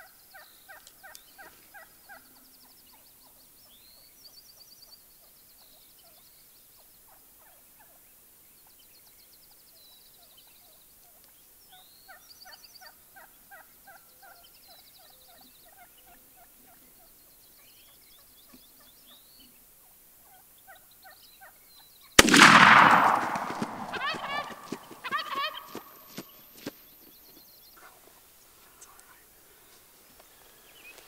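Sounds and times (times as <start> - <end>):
distant turkeys gobbling: 22.2 - 26.3.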